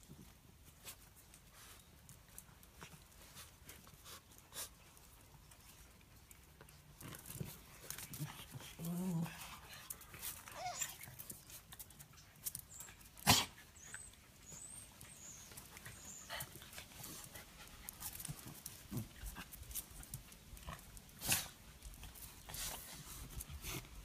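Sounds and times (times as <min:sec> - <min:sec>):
small dog noises: 0:00.0 - 0:24.0
dogs scuffling: 0:14.9 - 0:24.0.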